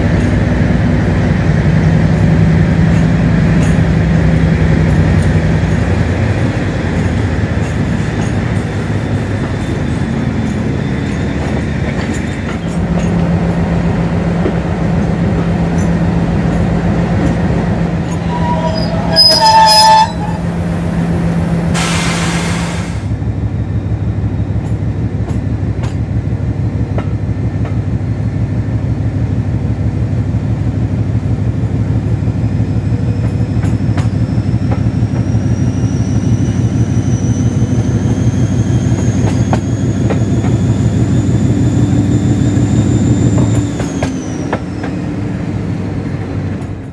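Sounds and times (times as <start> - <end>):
locomotive diesel engine: 0.0 - 46.9
burst of hiss: 21.8 - 23.1.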